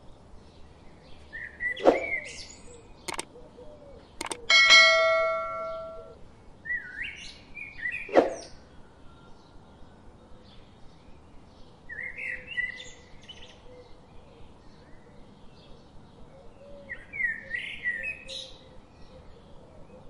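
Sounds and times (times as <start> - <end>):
bird song with rising notes: 0.4 - 3.3, 4.0 - 10.2.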